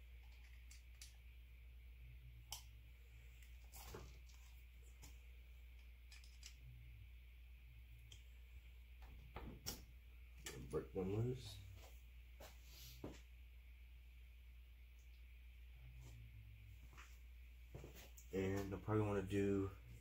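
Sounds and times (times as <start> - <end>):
low steady hum: 0.0 - 20.0
faint clicks of handling parts: 0.1 - 1.2, 2.5 - 6.8, 8.0 - 8.3.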